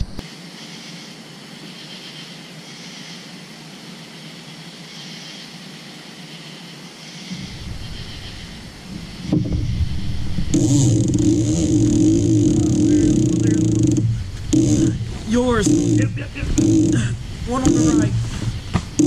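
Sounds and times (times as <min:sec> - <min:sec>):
insects chorus: 0:00.2 - 0:19.0
low rumble: 0:07.3 - 0:19.0.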